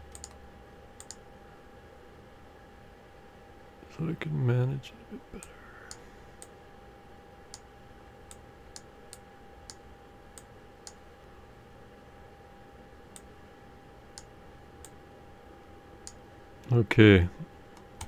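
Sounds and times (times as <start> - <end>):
faint steady tone: 0.0 - 17.6
computer mouse clicking: 0.1 - 0.4, 1.0 - 1.2.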